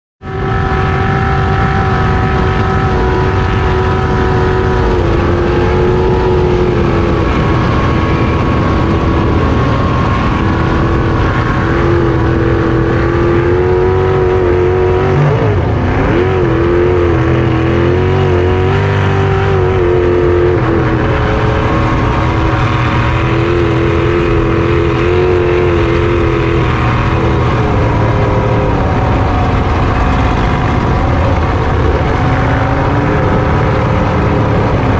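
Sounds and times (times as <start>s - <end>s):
jet boat engine running hard: 0.3s - 34.9s
rush of wind and water: 0.3s - 34.9s.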